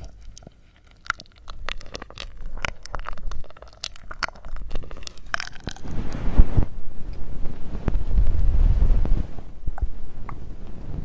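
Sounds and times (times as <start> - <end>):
mouth nibbling and sucking clicks: 0.0 - 8.4.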